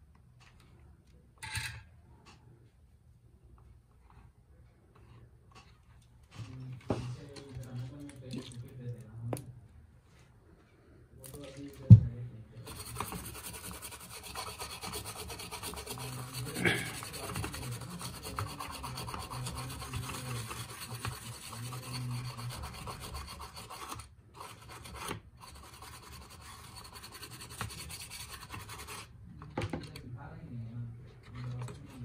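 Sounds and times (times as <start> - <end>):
hand tools scraping circuit board: 12.6 - 29.1, 31.2 - 32.0.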